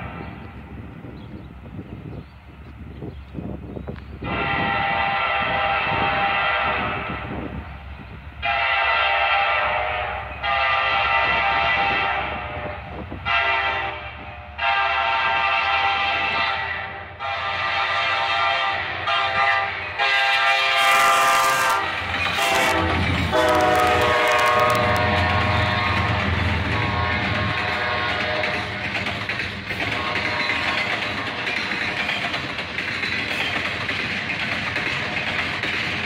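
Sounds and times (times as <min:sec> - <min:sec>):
locomotive engine and wheel rumble: 0:00.0 - 0:36.0
locomotive air horn blasts: 0:04.2 - 0:07.3, 0:08.4 - 0:28.8, 0:30.0 - 0:30.8.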